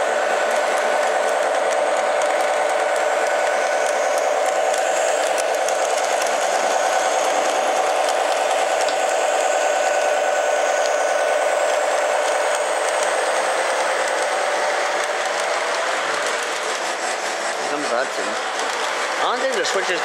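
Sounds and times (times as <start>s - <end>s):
model locomotive motor whine: 0.0s - 20.0s
wheels clicking on rails: 0.0s - 20.0s.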